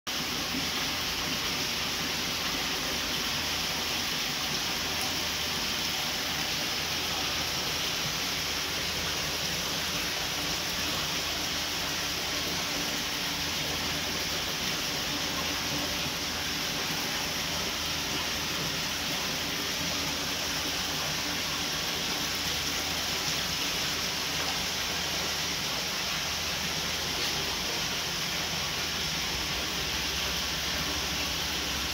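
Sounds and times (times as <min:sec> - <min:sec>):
running water rushing: 0:00.1 - 0:31.9.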